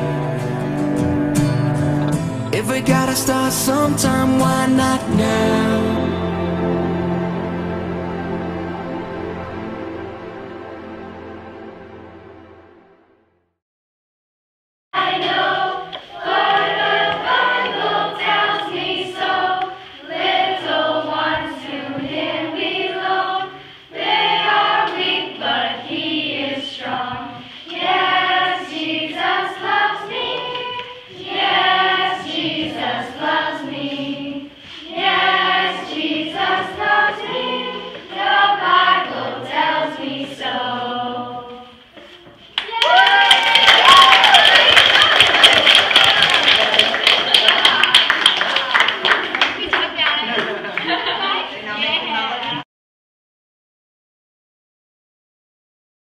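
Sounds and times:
group singing together: 0.0 - 11.6, 15.0 - 42.4.

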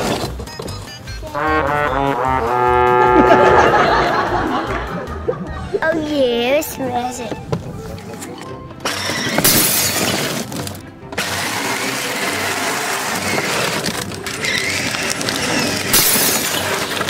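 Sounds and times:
toy truck electric motor whirring: 8.8 - 17.0.

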